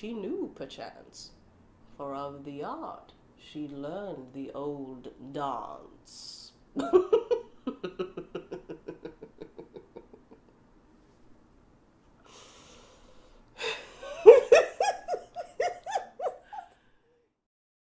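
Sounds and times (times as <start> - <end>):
woman laughing: 6.8 - 10.5, 13.6 - 16.8
intake of breath: 12.2 - 14.0.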